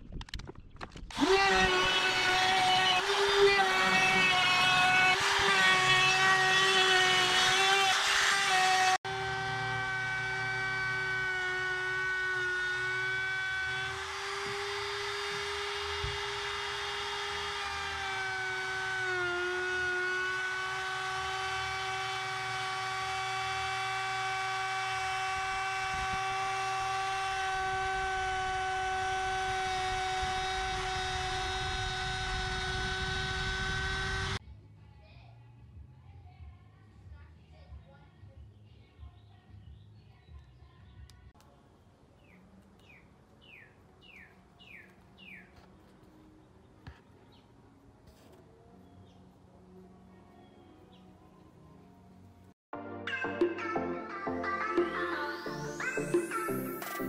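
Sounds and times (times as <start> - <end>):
router whining while trimming wood: 1.1 - 34.4.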